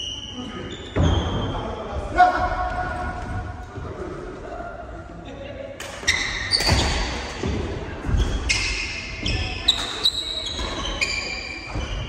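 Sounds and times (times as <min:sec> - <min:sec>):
shoes squeaking on wooden floor: 0:08.0 - 0:12.0.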